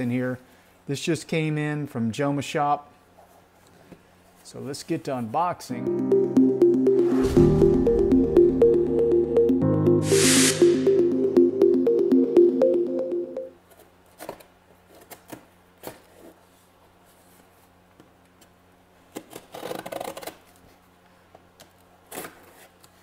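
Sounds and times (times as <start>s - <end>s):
electronic music: 5.7s - 13.5s.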